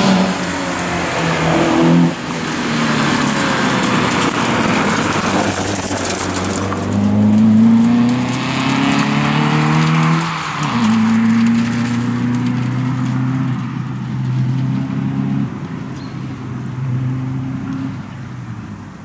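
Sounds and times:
tyre noise rush: 0.0 - 15.7
rally car engine revving: 0.0 - 18.8.

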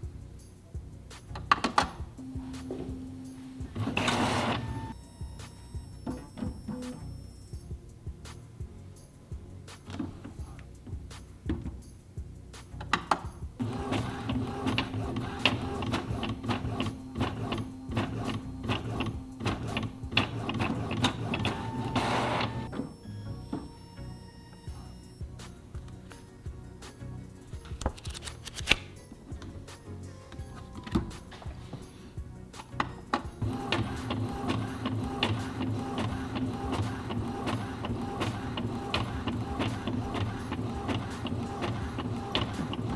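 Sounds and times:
printer whirr: 1.7 - 7.2, 13.6 - 23.0, 32.8 - 42.9
printer motors humming: 1.7 - 7.3, 13.6 - 23.0, 32.8 - 42.9
printer clicking: 3.7 - 5.0, 12.8 - 22.9, 32.6 - 42.9.

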